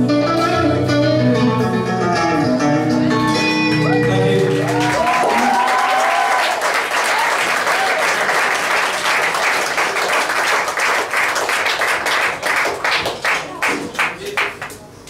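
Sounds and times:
audience applauding: 0:03.8 - 0:14.8.

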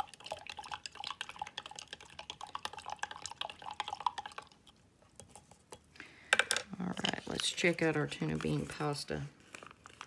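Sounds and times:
liquid swirling: 0:00.0 - 0:05.9.

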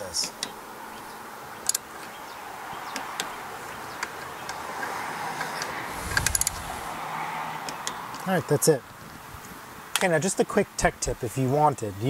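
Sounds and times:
low thud: 0:06.0 - 0:06.9.

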